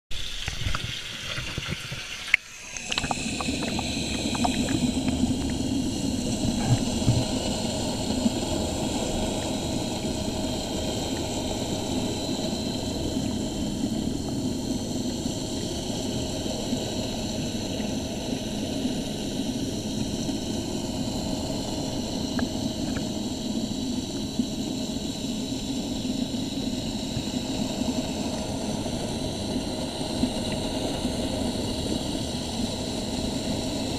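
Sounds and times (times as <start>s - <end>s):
underwater mechanical drone: 0.1s - 33.9s.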